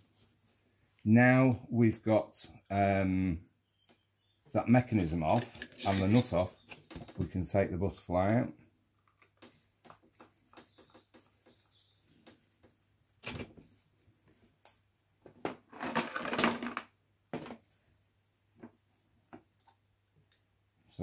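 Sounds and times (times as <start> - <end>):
metal parts clattering on workbench: 5.0 - 6.4, 15.7 - 16.9.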